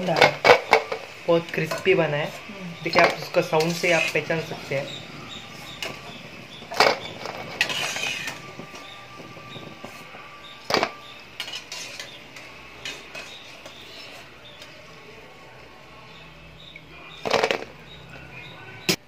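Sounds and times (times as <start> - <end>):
fried balls clattering on steel plate: 0.0 - 2.0, 2.8 - 5.0, 5.7 - 14.8, 17.1 - 18.0.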